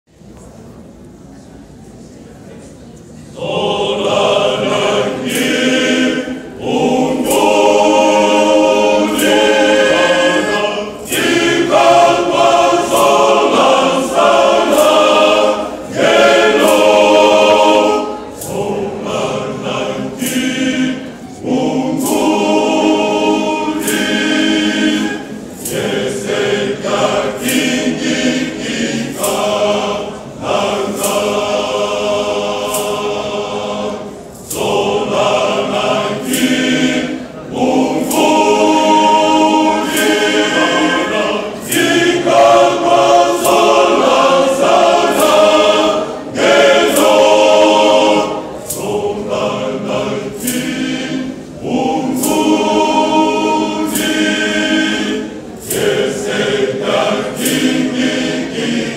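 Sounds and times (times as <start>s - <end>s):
male voice choir singing: 3.3s - 58.9s.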